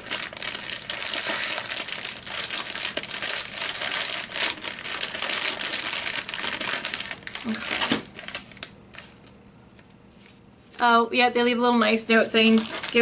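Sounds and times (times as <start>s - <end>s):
plastic bags crinkling: 0.0s - 9.3s, 12.1s - 13.0s.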